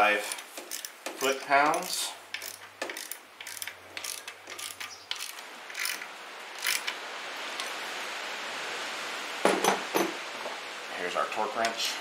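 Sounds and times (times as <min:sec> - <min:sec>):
ratchet wrench clicking: 0:00.2 - 0:07.0.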